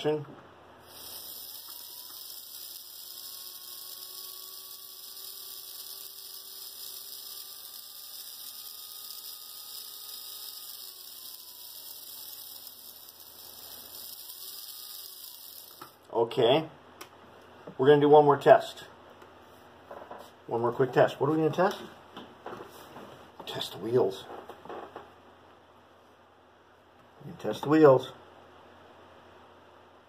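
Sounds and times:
electric motor whirring: 0.8s - 16.0s.

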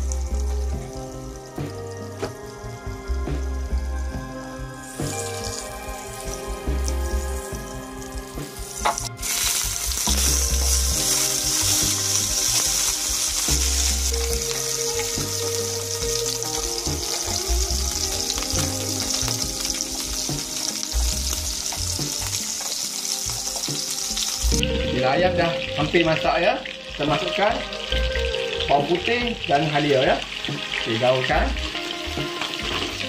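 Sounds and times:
chicken sizzling in oil: 0.0s - 33.0s.

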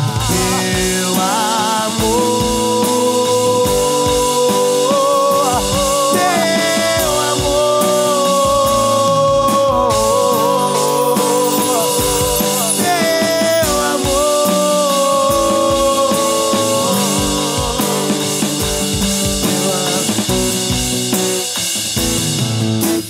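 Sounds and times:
kick drum beat: 2.0s - 4.5s, 5.4s - 7.8s, 8.4s - 10.6s, 12.0s - 14.5s, 15.2s - 22.8s.

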